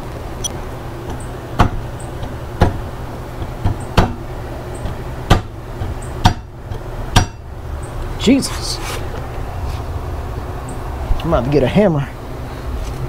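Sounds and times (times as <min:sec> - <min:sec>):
wrench knocking on metal: 0:01.1 - 0:07.5.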